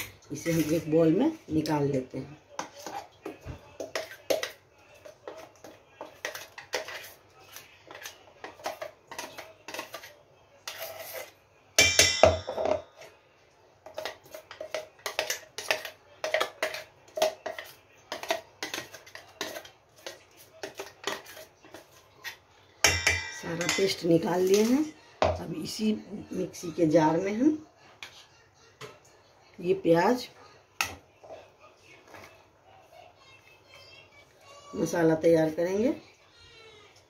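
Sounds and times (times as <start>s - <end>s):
metal scrapes and taps: 7.9s - 11.3s, 13.8s - 24.0s
metallic clang and ringing: 11.8s - 12.8s, 22.9s - 24.0s.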